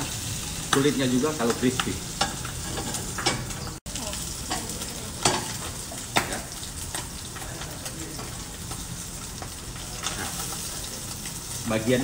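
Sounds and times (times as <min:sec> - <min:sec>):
fish sizzling in frying pan: 0:00.0 - 0:12.0
metal tongs clicking on pan: 0:04.4 - 0:08.8.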